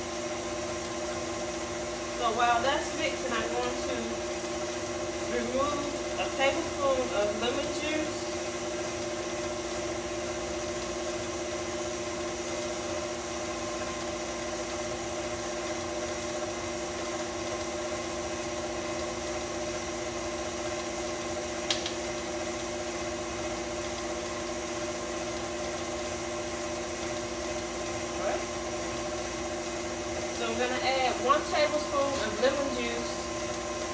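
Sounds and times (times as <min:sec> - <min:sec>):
stand mixer motor humming: 0:00.0 - 0:33.9
sharp click: 0:21.7 - 0:22.0.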